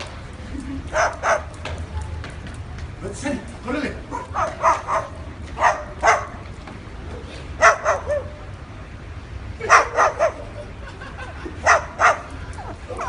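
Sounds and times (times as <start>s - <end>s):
cockatoo barking calls: 4.1s - 6.4s, 7.6s - 8.5s, 9.6s - 10.5s.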